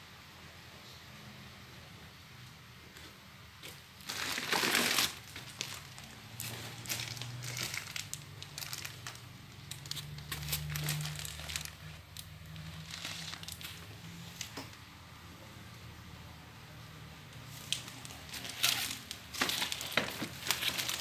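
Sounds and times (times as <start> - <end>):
plastic film crinkling: 3.6 - 14.6, 17.4 - 21.0.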